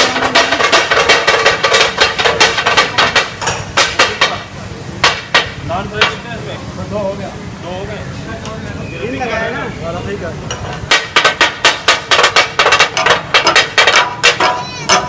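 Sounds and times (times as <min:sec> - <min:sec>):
metal spatulas clanging on griddle: 0:10.5 - 0:15.0.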